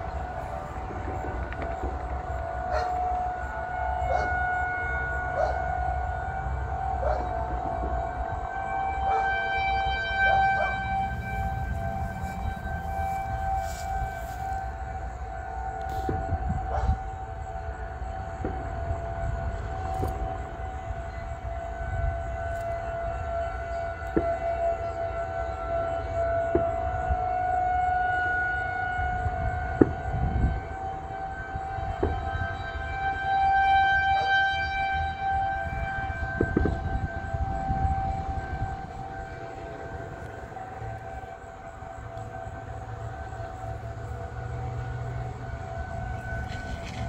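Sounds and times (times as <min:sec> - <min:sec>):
warning siren wailing: 0:00.0 - 0:47.0
low rumble: 0:10.7 - 0:14.9.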